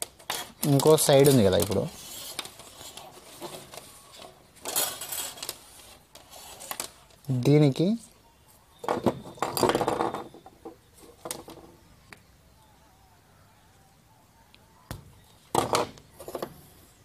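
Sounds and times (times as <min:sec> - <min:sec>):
wire stripper clicking and scraping: 0:00.0 - 0:07.3.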